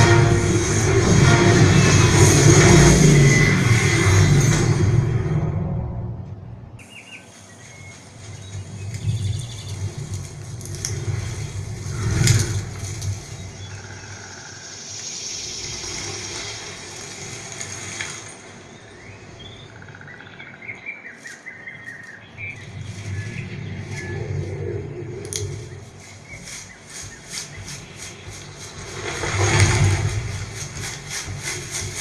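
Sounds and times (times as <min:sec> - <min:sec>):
loud swell: 0:00.0 - 0:06.8
low rumble: 0:00.0 - 0:20.9, 0:22.2 - 0:32.0
bird chirps: 0:06.8 - 0:32.0.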